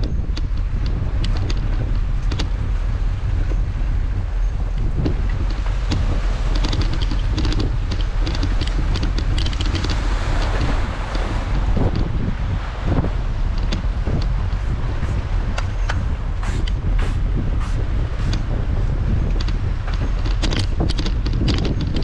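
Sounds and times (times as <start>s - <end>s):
wind buffeting microphone: 0.0s - 22.0s
bicycle rattling over brick paving: 5.1s - 12.1s, 18.3s - 22.0s.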